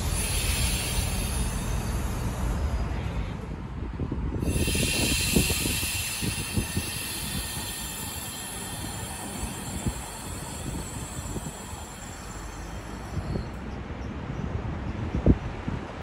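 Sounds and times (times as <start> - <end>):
high hiss of air: 0.0 - 3.0, 4.4 - 13.6
train rumbling: 0.0 - 14.8
wheels knocking on rails: 4.4 - 13.6.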